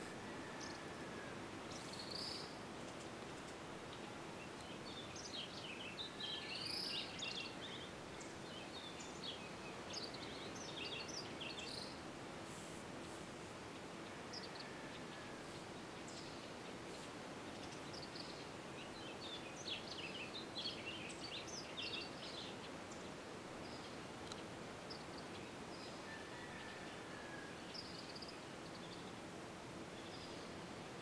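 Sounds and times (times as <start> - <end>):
background hiss: 0.0 - 31.0
bird singing: 3.9 - 12.0, 14.0 - 23.0.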